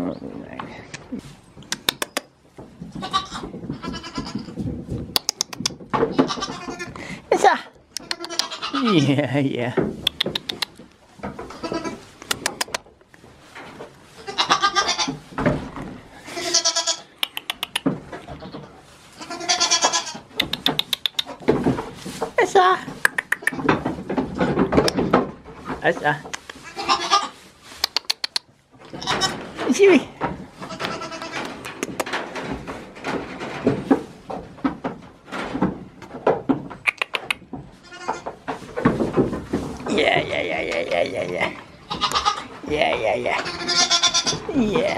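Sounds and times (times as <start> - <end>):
quick sharp clicks: 1.6 - 2.3, 5.2 - 5.8, 17.2 - 17.8, 20.4 - 21.3
goats bleating: 3.0 - 4.5, 6.2 - 7.1, 8.0 - 9.1, 14.2 - 15.2, 16.2 - 17.1, 19.2 - 20.2, 26.6 - 27.4, 30.6 - 31.6, 39.9 - 42.5, 43.2 - 44.9.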